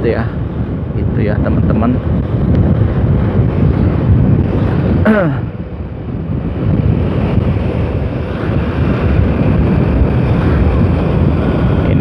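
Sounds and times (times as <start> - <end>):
motorcycle engine and road noise: 0.0 - 12.0
wind rushing over microphone: 0.0 - 12.0.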